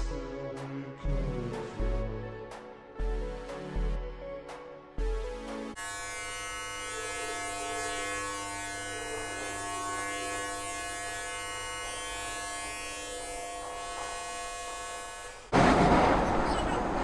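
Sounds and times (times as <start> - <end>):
electrical buzzing drone: 5.8 - 17.0.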